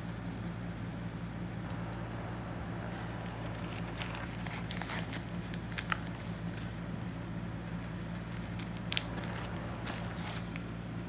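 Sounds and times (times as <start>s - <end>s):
steady low hum: 0.0s - 11.0s
plastic pouch crinkling: 3.0s - 6.7s, 7.8s - 10.8s.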